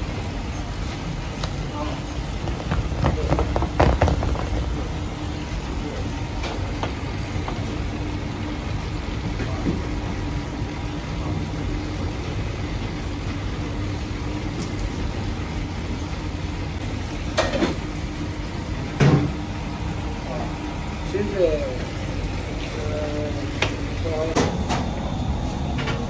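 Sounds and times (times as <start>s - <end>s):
machinery rumbling: 0.0s - 14.4s, 15.0s - 26.0s
faint constant hum: 0.0s - 26.0s
sharp knocks: 2.5s - 4.8s.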